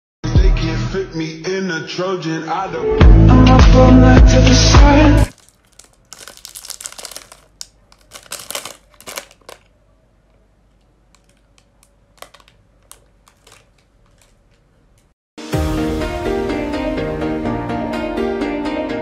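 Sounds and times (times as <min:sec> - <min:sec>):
plastic wrapper crinkling: 0:05.3 - 0:15.2.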